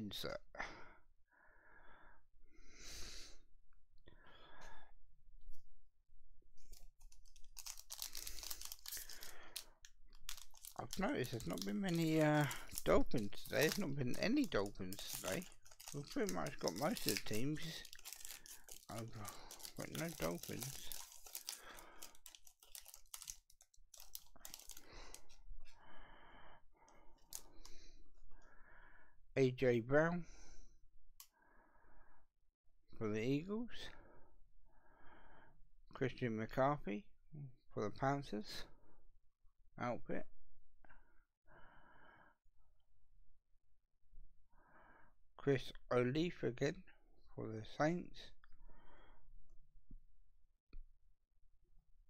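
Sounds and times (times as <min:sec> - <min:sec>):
cards rustling: 0:06.6 - 0:25.4
plastic wrapping crinkling: 0:06.6 - 0:25.4.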